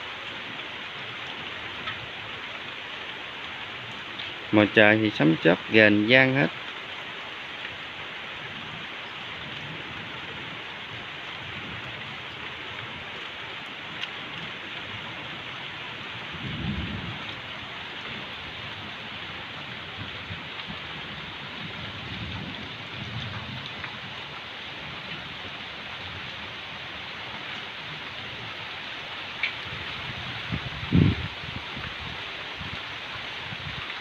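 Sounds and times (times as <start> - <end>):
light rain falling: 0.0 - 34.0
thunder rumbling: 16.2 - 26.6, 29.6 - 31.5.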